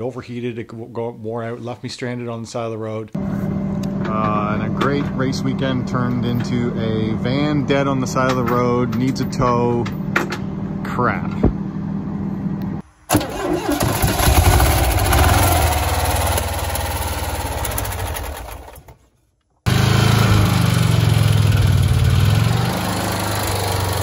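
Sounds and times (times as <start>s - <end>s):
air-cooled engine running: 13.1s - 19.0s, 19.7s - 24.0s.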